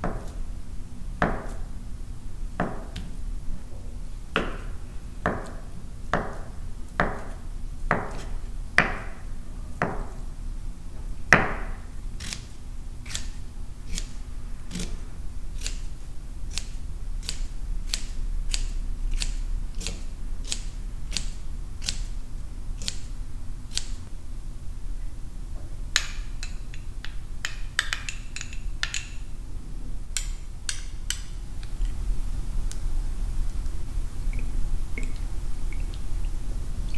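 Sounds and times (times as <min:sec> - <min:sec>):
knife chopping on cutting board: 0:06.2 - 0:09.1, 0:14.7 - 0:15.0.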